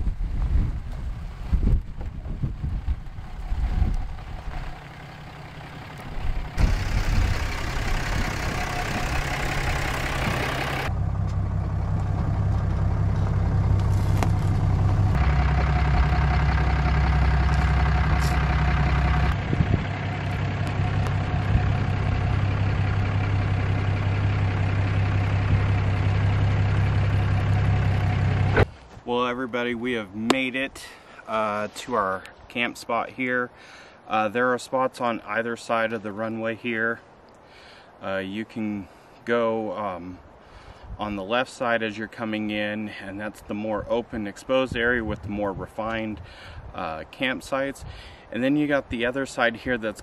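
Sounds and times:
diesel engine idling: 2.6 - 28.8.

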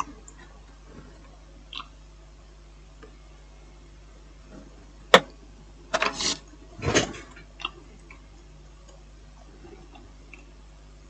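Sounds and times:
faint steady hum: 0.0 - 11.0
short scraping: 6.0 - 7.3.

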